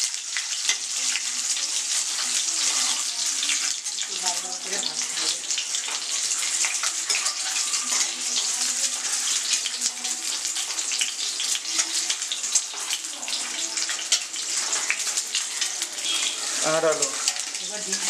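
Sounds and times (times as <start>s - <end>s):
eggs sizzling in hot oil: 0.0s - 18.0s
steel spatula turning food: 0.2s - 18.0s.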